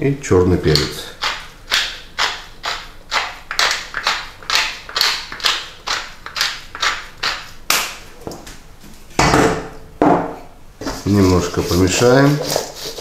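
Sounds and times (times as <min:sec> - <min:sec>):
pepper mill grinding: 0:00.7 - 0:07.5.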